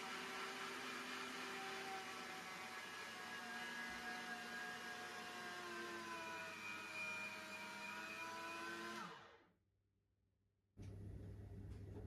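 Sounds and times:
meat grinder motor whining: 0.0s - 9.5s.

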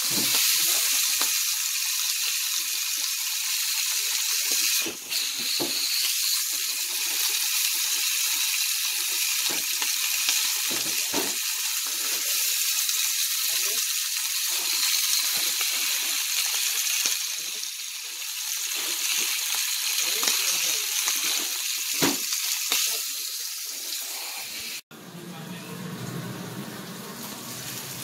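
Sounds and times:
food sizzling in hot oil: 0.0s - 24.8s, 25.8s - 28.0s.

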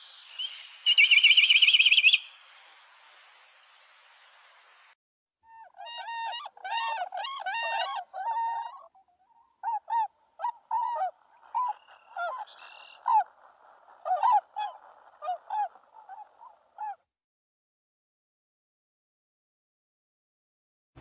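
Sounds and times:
faint hiss: 0.0s - 5.0s.

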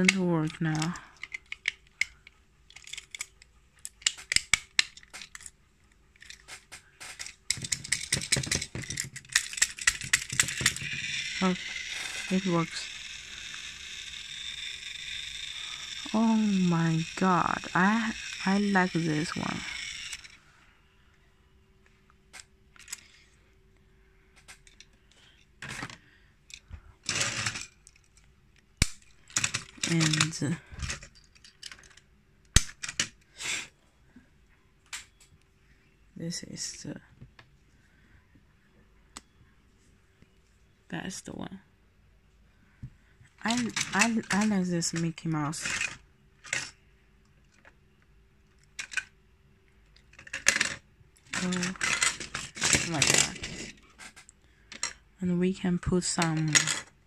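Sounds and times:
plastic toy clicking and clattering: 0.0s - 20.4s, 22.3s - 23.2s, 24.4s - 33.3s, 43.4s - 46.8s, 48.5s - 49.1s, 49.9s - 55.0s, 55.8s - 57.0s.

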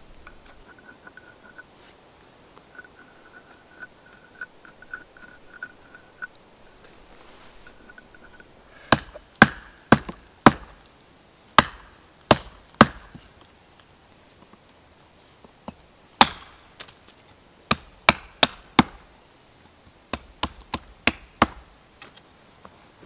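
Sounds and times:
hatchet chopping wood: 8.8s - 10.8s, 11.6s - 13.3s, 15.7s - 16.9s, 17.7s - 19.1s, 20.1s - 21.7s.

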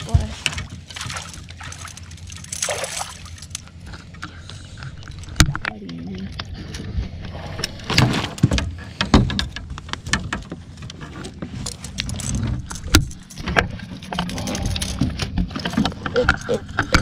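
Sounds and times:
fish splashing at surface: 0.6s - 3.6s.

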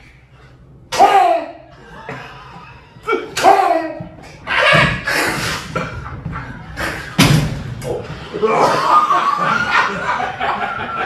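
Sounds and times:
loud thump: 7.2s - 7.7s.

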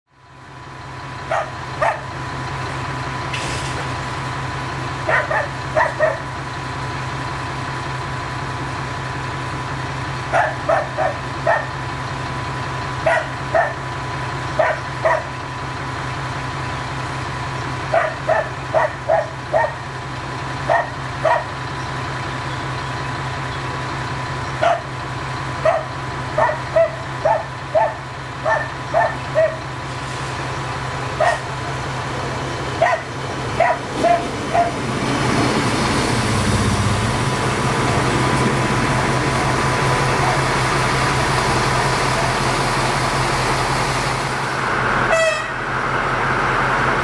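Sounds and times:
diesel train running noise: 0.1s - 47.0s
idling diesel train hum: 0.1s - 47.0s
dog barking: 1.3s - 2.1s, 5.1s - 6.3s, 10.3s - 11.7s, 13.0s - 13.8s, 14.6s - 15.3s, 17.9s - 19.8s, 20.7s - 21.6s, 24.6s - 24.9s, 25.6s - 29.6s, 31.2s - 31.5s, 32.8s - 34.8s.

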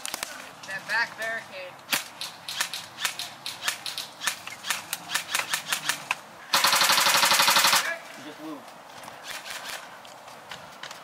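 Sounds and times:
airsoft gunfire snaps: 1.9s - 6.0s
rapid full-auto burst: 5.1s - 8.0s.

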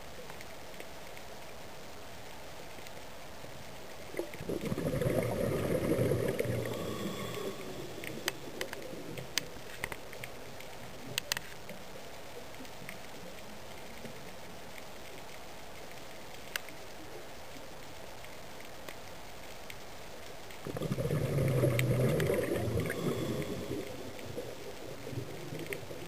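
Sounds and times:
underwater bubbles gurgling: 4.0s - 11.8s, 20.6s - 26.0s.

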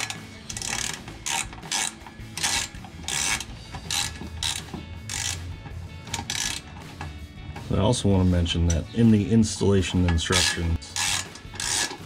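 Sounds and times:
socket ratchet clicking: 0.0s - 7.1s, 10.4s - 12.0s.

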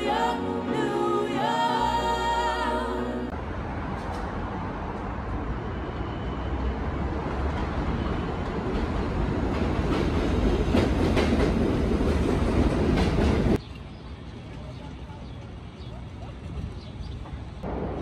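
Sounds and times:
subway train arriving: 0.0s - 15.8s
wheels clacking over rail joints: 8.4s - 13.6s.

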